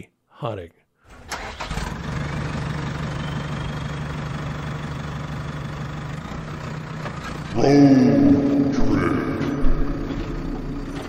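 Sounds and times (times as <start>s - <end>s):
vehicle engine starting and idling: 1.1s - 7.7s, 9.3s - 11.0s.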